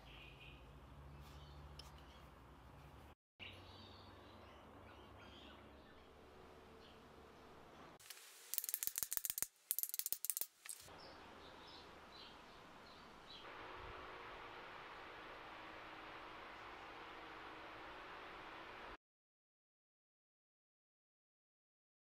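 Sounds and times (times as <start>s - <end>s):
ratchet clicking: 8.5s - 10.8s.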